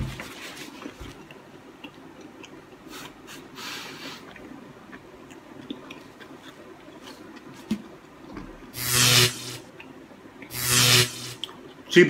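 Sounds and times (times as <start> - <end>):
man chewing with wet clicks: 0.8 - 8.6, 9.7 - 10.5, 11.4 - 11.9.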